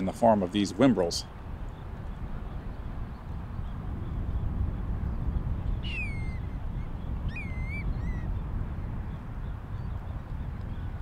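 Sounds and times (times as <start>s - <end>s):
bird calls: 5.7s - 11.0s.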